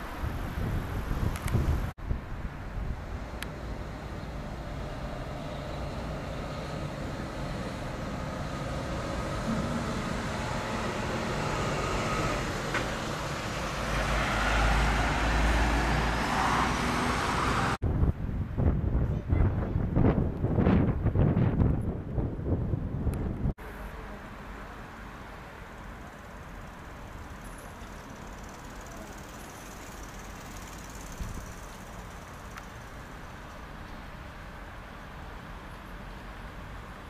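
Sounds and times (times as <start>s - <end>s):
wind on microphone: 0.0s - 3.2s, 17.4s - 23.6s
steam locomotive hissing: 4.8s - 14.3s
low rumble: 7.5s - 13.9s
metal clank: 9.4s - 11.8s.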